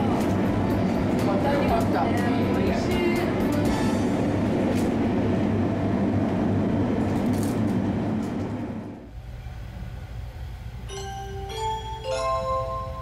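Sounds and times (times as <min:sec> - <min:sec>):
train running at speed: 0:00.0 - 0:11.8.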